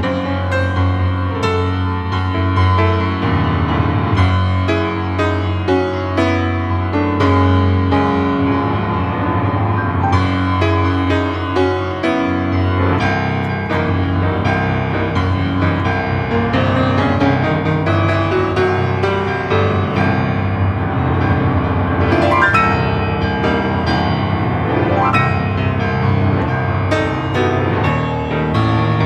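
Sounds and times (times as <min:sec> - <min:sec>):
prepared piano quick notes: 0:06.4 - 0:29.0.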